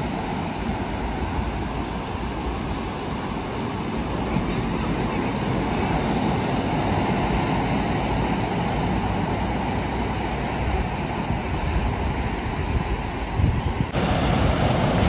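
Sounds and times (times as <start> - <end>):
ocean surf breaking: 0.0 - 15.0
wind buffeting the microphone: 0.0 - 15.0.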